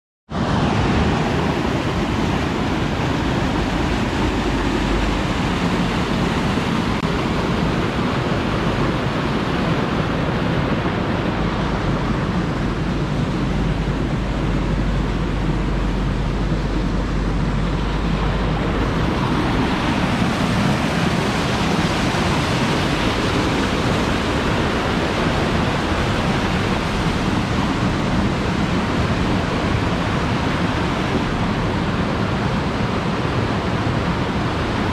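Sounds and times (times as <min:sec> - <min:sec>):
white water rushing: 0:00.3 - 0:34.9.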